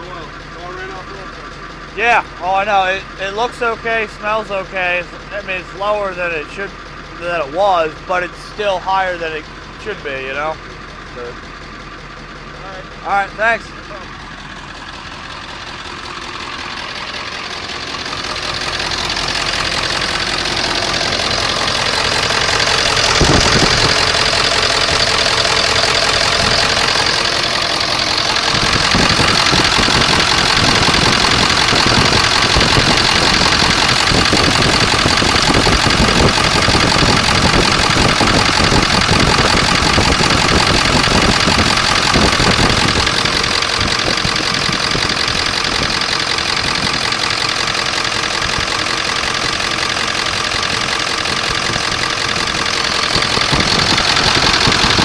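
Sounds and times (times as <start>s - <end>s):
diesel engine idling roughly: 0.0s - 55.0s
loud injector clatter: 15.4s - 55.0s.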